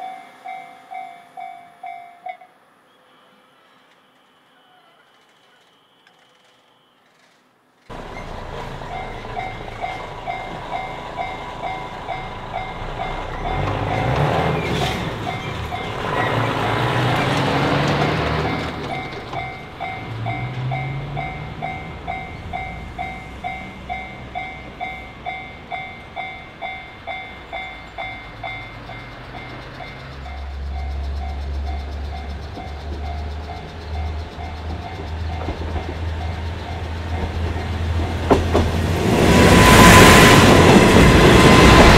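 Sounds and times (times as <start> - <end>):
level crossing warning bell: 0.0 - 2.6, 7.9 - 38.3
low drone of approaching train: 0.0 - 41.9
rushing noise: 7.9 - 41.9.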